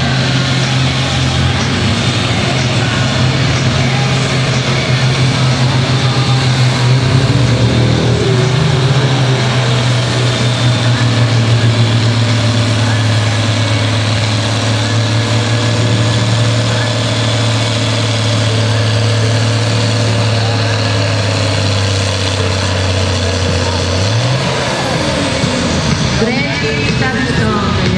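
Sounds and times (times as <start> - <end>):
tractor diesel engine under load: 0.0 - 27.9.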